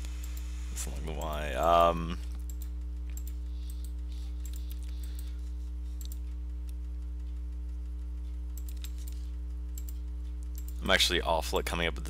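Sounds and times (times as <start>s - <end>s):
low electrical hum: 0.0s - 12.0s
mouse and keyboard clicks: 8.5s - 10.8s.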